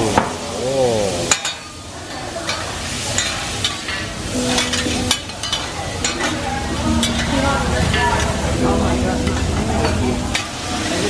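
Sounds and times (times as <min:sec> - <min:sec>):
food sizzling on a griddle: 0:00.0 - 0:11.0
wavering pitched tone: 0:06.8 - 0:10.4.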